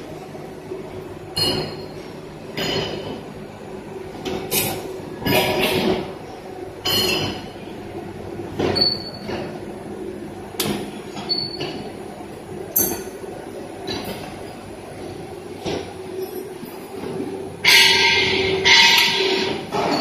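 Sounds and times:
factory machinery hum: 0.0 - 20.0
loud metallic clanks: 17.6 - 20.0.

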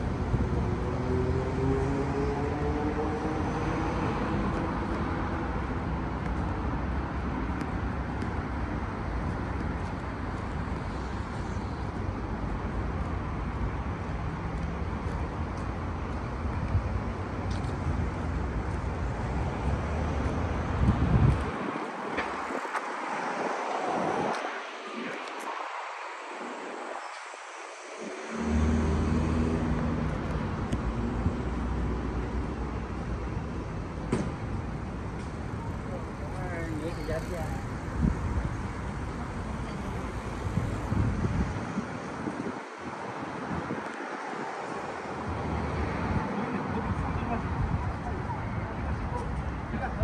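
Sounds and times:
road traffic noise: 0.0 - 50.0
wind on microphone: 16.5 - 33.0, 36.8 - 49.7
passing vehicle engine: 19.1 - 32.2.

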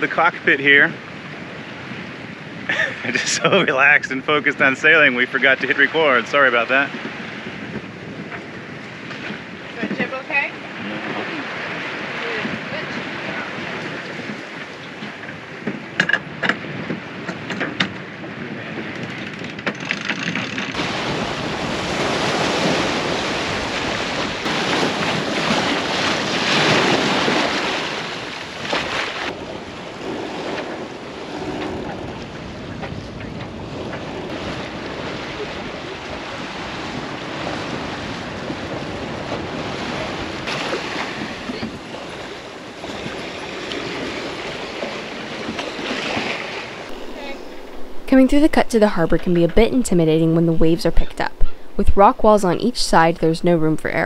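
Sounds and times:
water splashing along hull: 0.0 - 54.0
wind buffeting microphone: 0.0 - 54.0.

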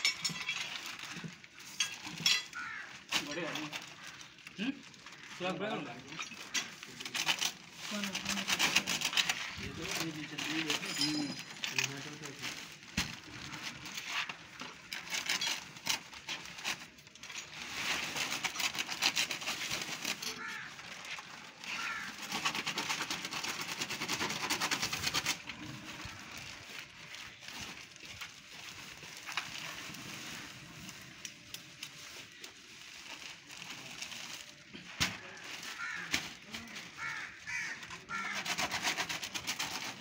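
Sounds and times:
powder pouring with crackling hiss: 0.0 - 7.0, 19.5 - 22.2, 25.4 - 38.2
plastic bags crinkling: 0.0 - 40.0.

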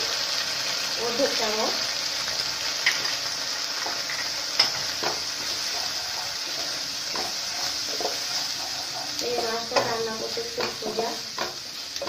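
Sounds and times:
spices sizzling in hot oil: 0.0 - 12.0
wooden spatula knocking pan: 7.0 - 12.0.

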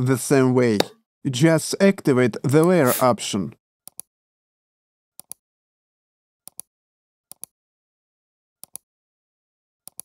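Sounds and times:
computer mouse clicks: 3.9 - 4.1, 5.2 - 5.4, 6.5 - 6.7, 7.3 - 7.5, 8.6 - 8.8.

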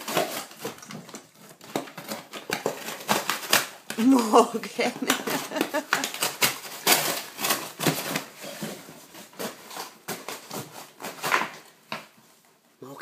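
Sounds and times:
dog biting and tearing a box: 0.0 - 4.2, 4.9 - 12.1.

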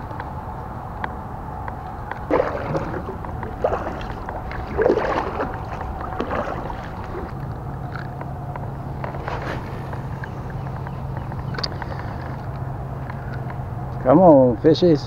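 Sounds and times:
low steady hum: 0.0 - 15.0
kayak paddle splashing: 2.3 - 8.2.

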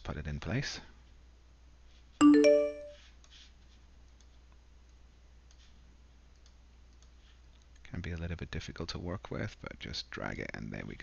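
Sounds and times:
computer alert chime: 2.2 - 3.0.

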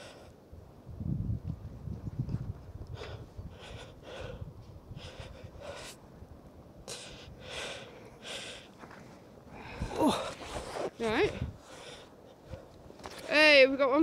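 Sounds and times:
person breathing hard: 2.9 - 6.0, 6.8 - 8.9, 9.5 - 12.6.

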